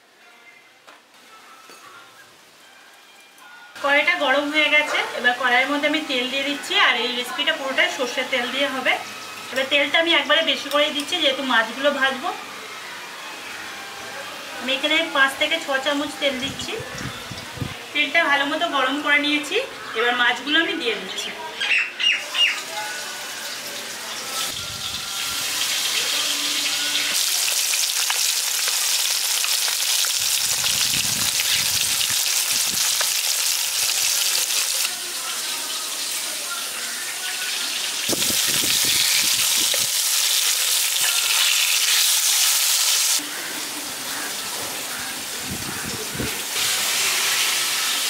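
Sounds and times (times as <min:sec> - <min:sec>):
fish sizzling in hot oil: 0:22.4 - 0:48.0.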